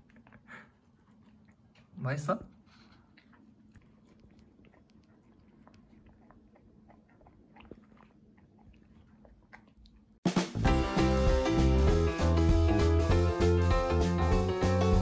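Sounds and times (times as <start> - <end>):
dog chewing food: 0.0 - 10.2
music: 10.2 - 15.0.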